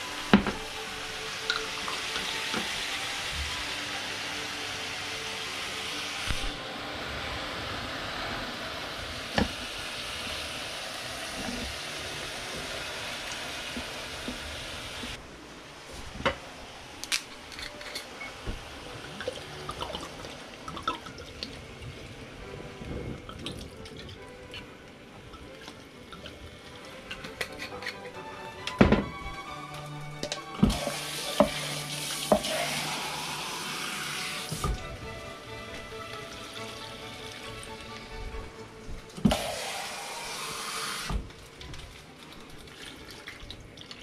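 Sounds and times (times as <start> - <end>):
kitchen utensils clinking: 17.1 - 18.4, 27.0 - 29.4
tap running into sink: 30.2 - 32.9, 34.4 - 35.0, 38.9 - 39.9.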